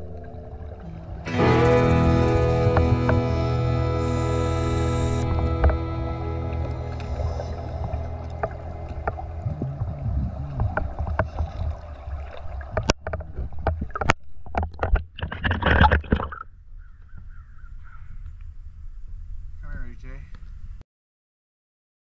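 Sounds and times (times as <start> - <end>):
water bubbling and sloshing: 0.0 - 1.4, 5.3 - 16.6.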